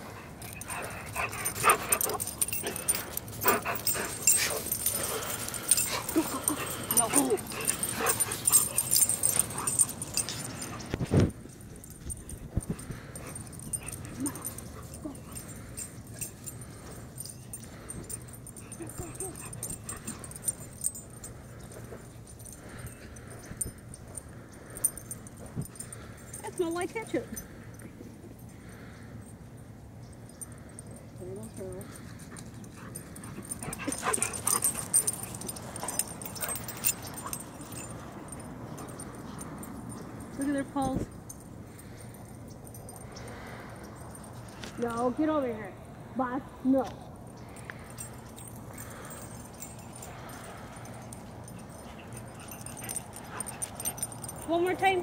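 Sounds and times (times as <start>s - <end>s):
dogs whining and yipping: 0.2s - 11.1s, 12.1s - 22.6s, 32.4s - 40.2s, 47.8s - 54.5s.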